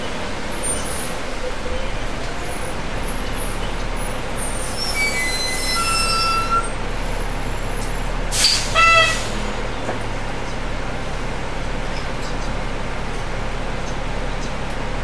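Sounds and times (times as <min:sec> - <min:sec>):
brakes squealing: 0:00.0 - 0:15.0
bus engine humming: 0:00.0 - 0:15.0
air brakes hissing: 0:08.3 - 0:09.6.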